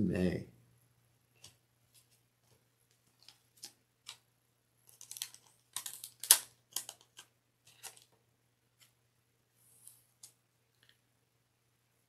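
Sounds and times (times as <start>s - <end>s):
cards ticking when handled: 4.8s - 8.2s
plastic sleeve crinkling: 4.8s - 8.2s.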